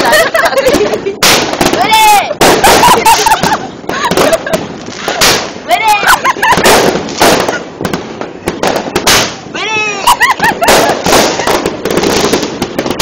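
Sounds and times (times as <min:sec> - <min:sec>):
fireworks bangs and crackles: 0:00.0 - 0:13.0.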